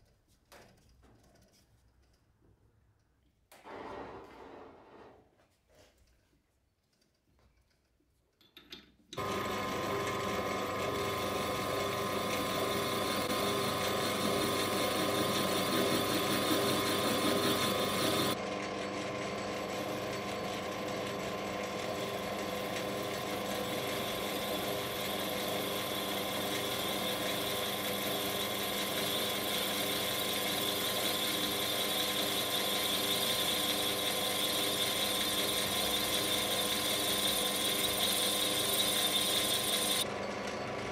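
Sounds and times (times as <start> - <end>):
metal lathe running: 9.2 - 40.9.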